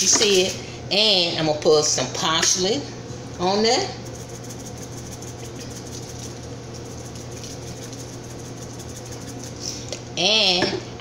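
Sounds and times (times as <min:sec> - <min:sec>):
steady low hum: 0:00.0 - 0:11.0
flakes pattering from spice jar: 0:03.4 - 0:09.8.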